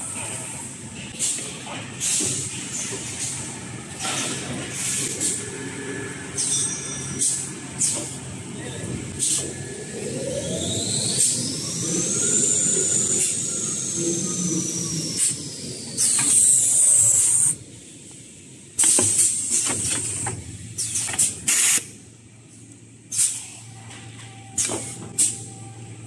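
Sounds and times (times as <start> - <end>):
machine whine: 3.2 - 22.6
machinery drone: 5.2 - 19.2.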